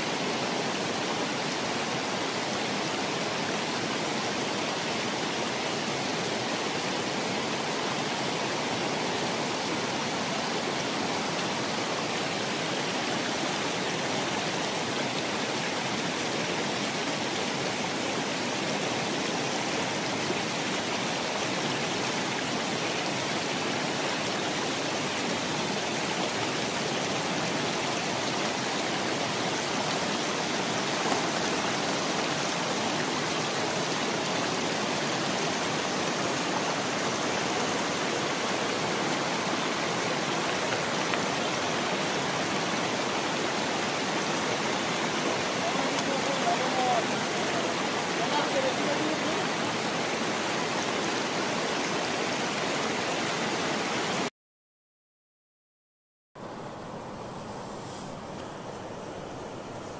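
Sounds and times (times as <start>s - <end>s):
river water rushing over rocks: 0.0s - 54.3s.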